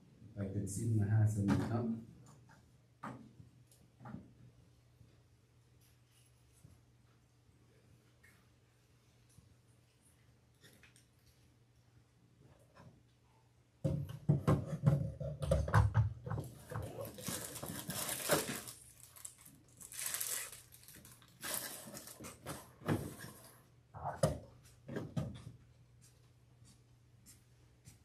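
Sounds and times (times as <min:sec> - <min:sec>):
knocks and thumps: 0:13.8 - 0:16.9
rustling: 0:16.6 - 0:23.6.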